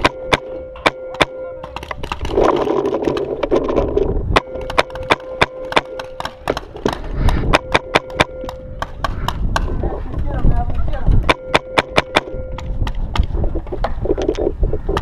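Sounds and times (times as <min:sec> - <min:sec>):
paintball guns firing: 0:00.0 - 0:09.7, 0:11.2 - 0:13.3.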